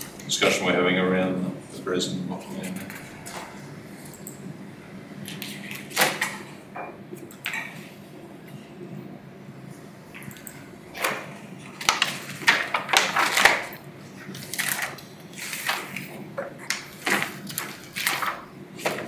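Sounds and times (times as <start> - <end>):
objects clicking and clattering: 11.0 - 13.8.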